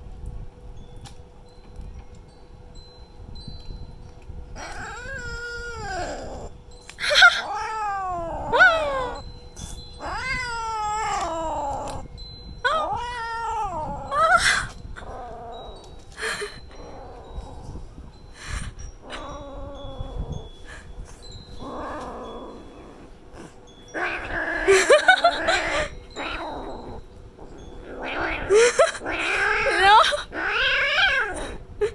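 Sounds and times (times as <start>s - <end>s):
kitten yowling: 4.6s - 9.2s, 10.0s - 12.1s, 12.7s - 15.4s, 27.8s - 31.6s.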